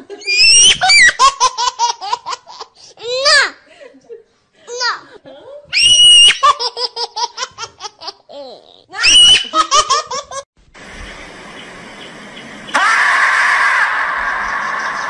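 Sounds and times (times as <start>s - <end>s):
outdoor hiss: 10.6s - 13.0s.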